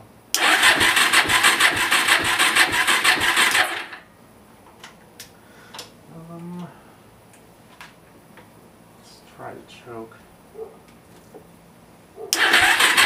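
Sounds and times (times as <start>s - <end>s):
engine cranking without firing: 0.4s - 4.0s, 12.3s - 13.0s.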